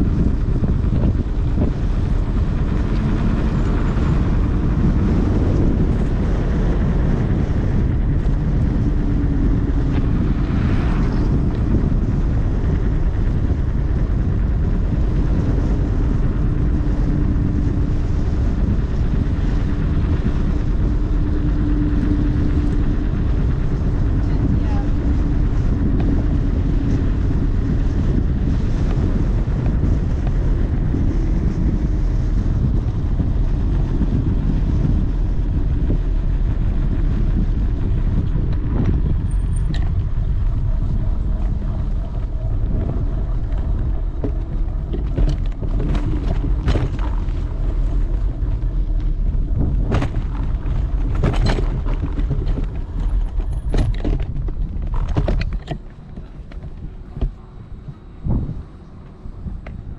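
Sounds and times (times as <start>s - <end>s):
wind buffeting microphone: 0.0s - 59.9s
sharp knocks and rattles: 37.2s - 57.4s.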